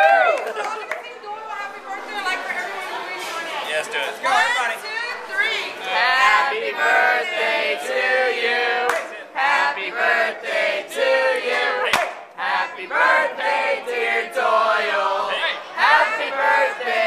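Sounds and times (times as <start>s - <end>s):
group of people singing together: 5.2s - 17.0s.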